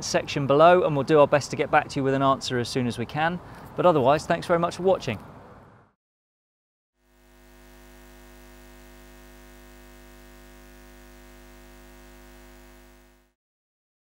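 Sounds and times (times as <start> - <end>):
neon sign mains hum: 7.0 - 13.4.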